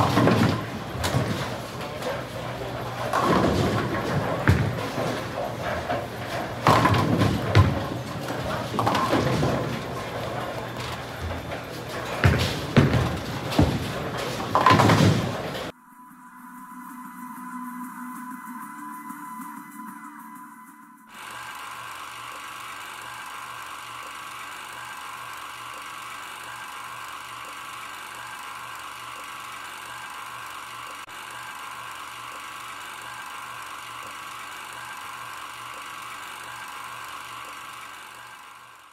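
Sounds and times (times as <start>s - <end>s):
mechanical whirring hum: 0.0s - 15.7s, 21.0s - 38.9s
music: 15.7s - 21.1s.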